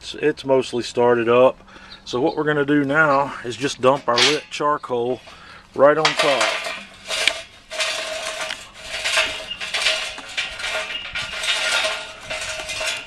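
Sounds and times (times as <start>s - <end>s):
charcoal briquettes clattering on metal: 2.8s - 13.0s.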